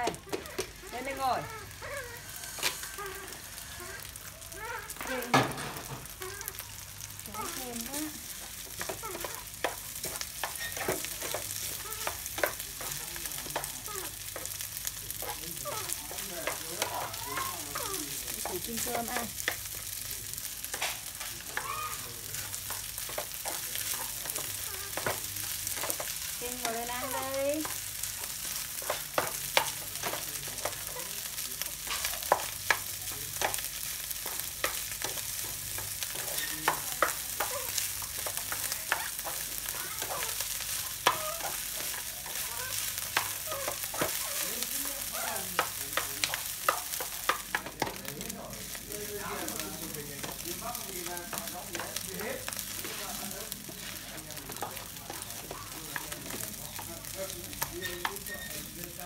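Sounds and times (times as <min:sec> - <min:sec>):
rice sizzling in a pan: 0:00.0 - 0:59.0
utensils scraping and clicking on pan: 0:00.0 - 0:59.0.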